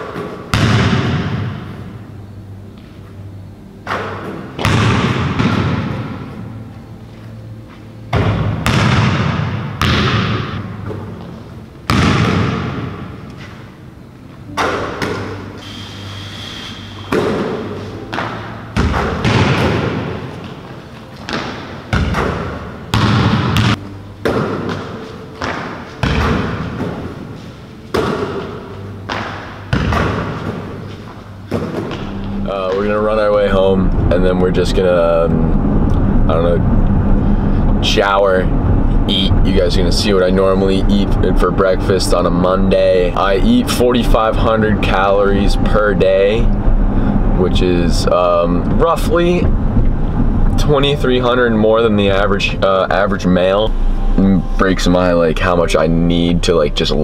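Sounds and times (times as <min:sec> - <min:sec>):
basketball bouncing on wooden floor: 0:08.2 - 0:11.0, 0:21.2 - 0:27.0.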